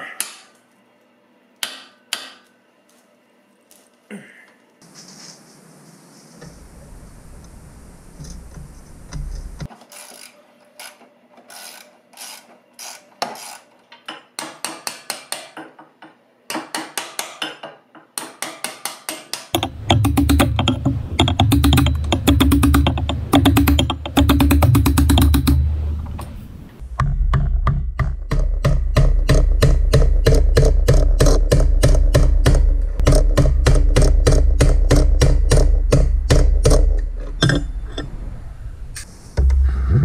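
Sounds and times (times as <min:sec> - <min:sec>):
hammer tapping on metal: 0:14.1 - 0:26.3.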